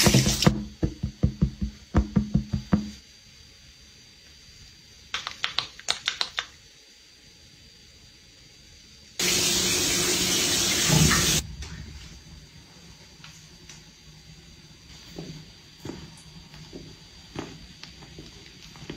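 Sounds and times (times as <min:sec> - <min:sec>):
water tap running: 0:00.0 - 0:02.9, 0:09.2 - 0:11.5.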